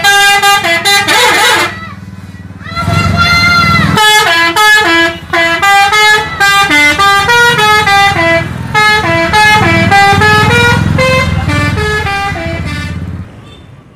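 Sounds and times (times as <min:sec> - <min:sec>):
musical air horn melody: 0:00.0 - 0:01.8, 0:03.9 - 0:13.0
bus engine running: 0:00.0 - 0:13.9.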